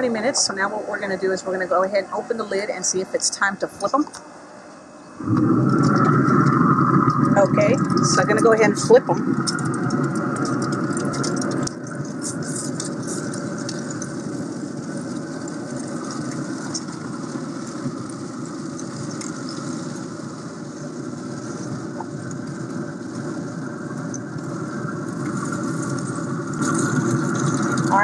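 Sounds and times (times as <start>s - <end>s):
grill fan humming: 0.0s - 28.0s
bacon sizzling: 5.2s - 28.0s.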